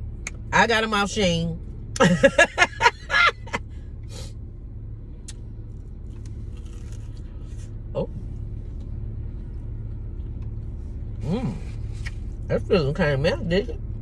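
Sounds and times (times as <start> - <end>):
car engine idling: 0.0 - 14.0
pie crust crackling while chewed: 6.1 - 7.7.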